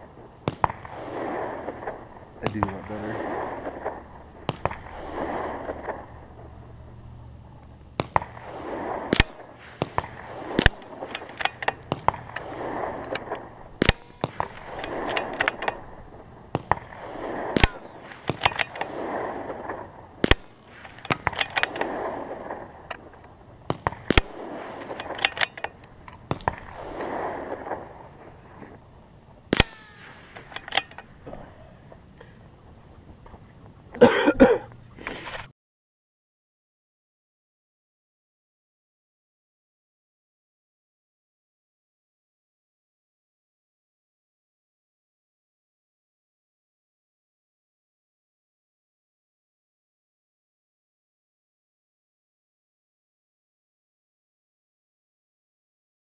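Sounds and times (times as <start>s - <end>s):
rifle shots cracking: 0.4s - 6.8s, 8.0s - 28.7s, 29.5s - 31.6s
rifle bolt clicks: 10.6s - 15.8s, 17.6s - 18.9s, 20.3s - 21.9s, 24.1s - 26.2s, 29.6s - 31.1s.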